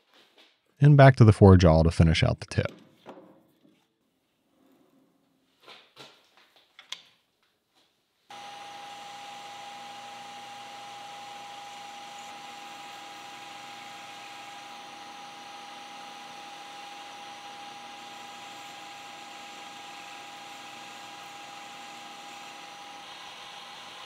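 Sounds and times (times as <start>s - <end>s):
metal lathe high whine: 8.3s - 24.0s.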